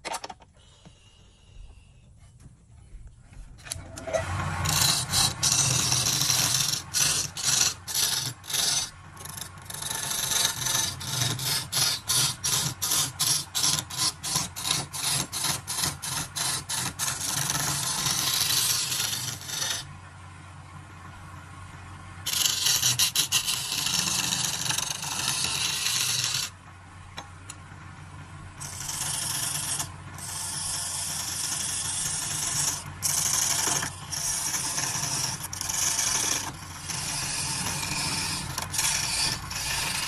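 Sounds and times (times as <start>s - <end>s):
lathe gouge scraping wood: 3.8s - 19.9s, 22.3s - 26.6s, 28.6s - 40.0s
lathe humming: 3.8s - 20.0s, 22.2s - 26.6s, 27.4s - 40.0s.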